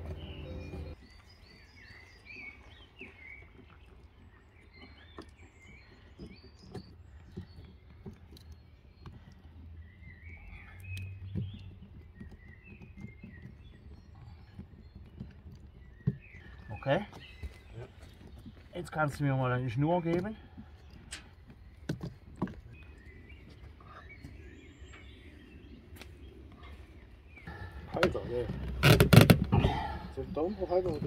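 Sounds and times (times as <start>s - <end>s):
small birds chirping: 0.0s - 31.0s
clicks and knocks on wood: 5.2s - 9.6s, 10.8s - 19.2s, 20.0s - 23.6s.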